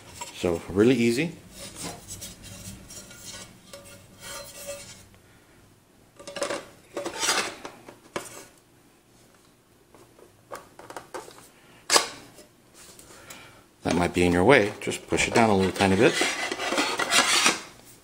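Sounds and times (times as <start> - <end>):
metal and plastic parts scraping: 6.2 - 8.5, 15.2 - 17.7.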